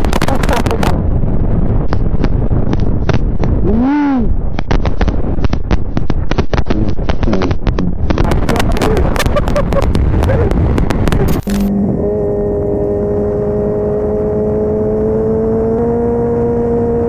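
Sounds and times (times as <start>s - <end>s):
wind buffeting with crackles: 0.0s - 17.0s
vehicle engine running: 6.7s - 17.0s.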